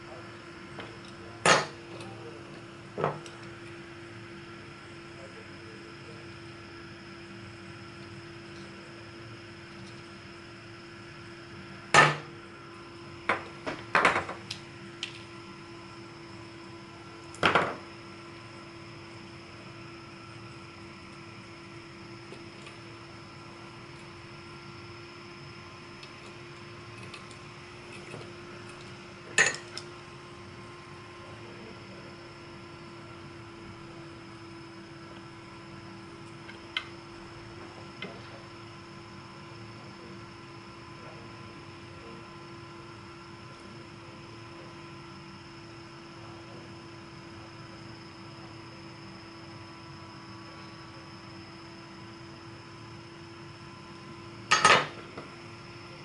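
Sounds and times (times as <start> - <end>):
small fan humming: 0.0 - 56.0.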